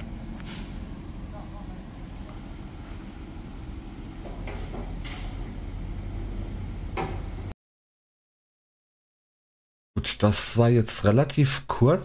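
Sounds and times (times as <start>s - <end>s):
truck diesel engine rumbling: 0.0s - 7.5s.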